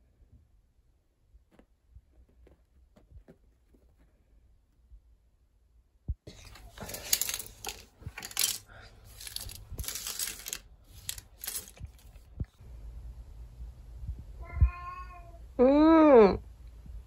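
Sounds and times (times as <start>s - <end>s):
plastic pens clattering on desk: 6.3s - 12.3s
cat meowing: 14.4s - 15.4s.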